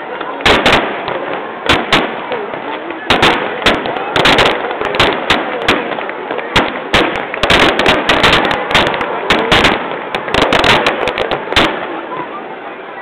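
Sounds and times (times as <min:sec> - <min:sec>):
fireworks bursting and crackling: 0:00.0 - 0:13.0.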